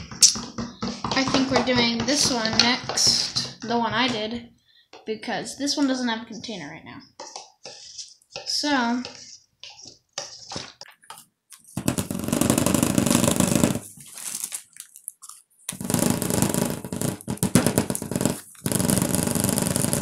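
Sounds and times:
vibrating device buzzing and rattling: 0:11.8 - 0:13.9, 0:15.7 - 0:20.0.

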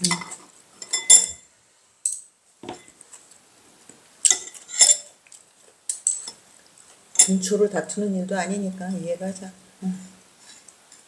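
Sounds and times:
chopsticks clinking on bowls: 0:00.0 - 0:01.4, 0:07.2 - 0:07.4.

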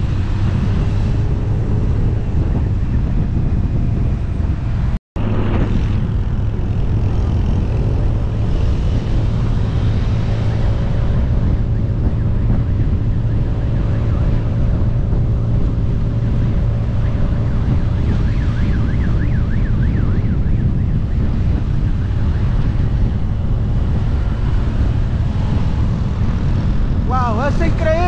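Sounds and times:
motorcycle engines: 0:00.0 - 0:28.0
wind rumble on microphone: 0:00.0 - 0:28.0
fast warbling siren: 0:10.4 - 0:23.0.

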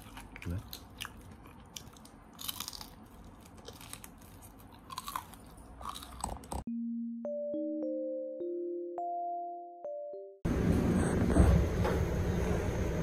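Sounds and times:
crunching fried chicken: 0:00.0 - 0:06.6
electronic keyboard music: 0:06.7 - 0:10.5.

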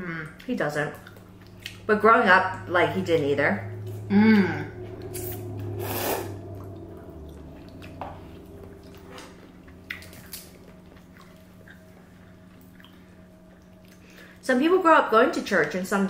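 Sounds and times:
wet eating sounds: 0:00.0 - 0:02.0, 0:03.7 - 0:14.4
steady low hum: 0:00.0 - 0:16.0.

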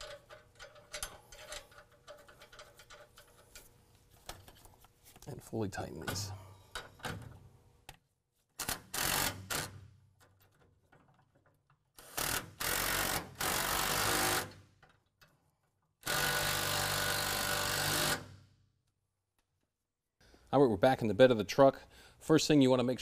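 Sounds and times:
impact wrench running in bursts: 0:08.6 - 0:09.7, 0:12.0 - 0:14.5, 0:16.0 - 0:18.3.

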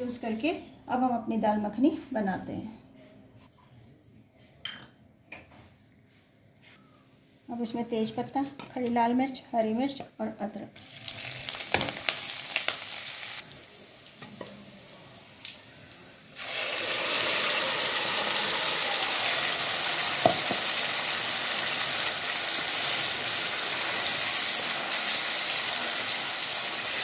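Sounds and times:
spices sizzling in hot ghee: 0:10.8 - 0:27.0.

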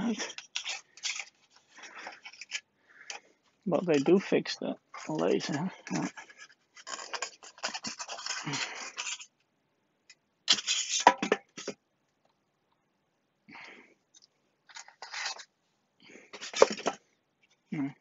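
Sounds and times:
foam blocks scraping and squeaking: 0:00.0 - 0:04.3, 0:04.9 - 0:09.3, 0:10.5 - 0:11.7, 0:14.7 - 0:15.5, 0:16.1 - 0:17.0.

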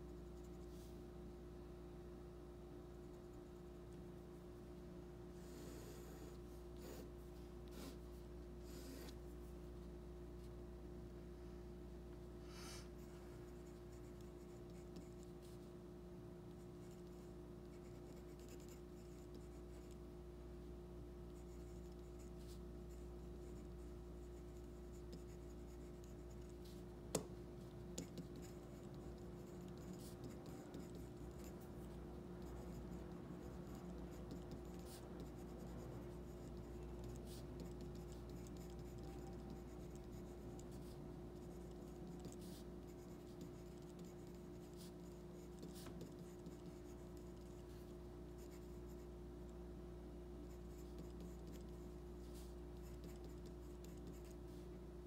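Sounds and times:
steady low hum: 0:00.0 - 0:55.0
pencil scratching on paper: 0:05.3 - 0:09.3, 0:12.5 - 0:15.7, 0:16.8 - 0:20.0, 0:21.3 - 0:49.0, 0:50.5 - 0:54.6.

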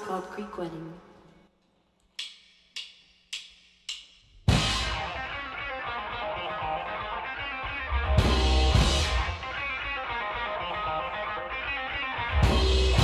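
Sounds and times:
live rock band playing: 0:04.5 - 0:13.0.

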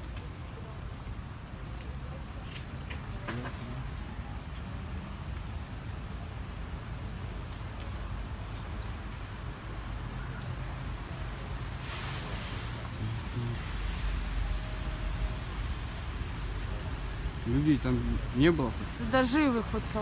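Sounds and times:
low background noise: 0:00.0 - 0:20.0
cricket chirping: 0:03.0 - 0:11.9, 0:13.3 - 0:20.0.

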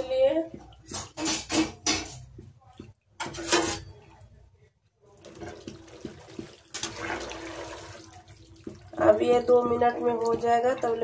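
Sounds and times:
ladle stirring pot: 0:00.0 - 0:11.0
water boiling and bubbling: 0:04.2 - 0:11.0.

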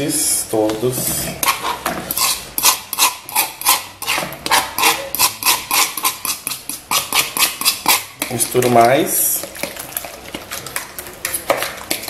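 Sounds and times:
scraping on plastic cutting board: 0:01.0 - 0:08.0.

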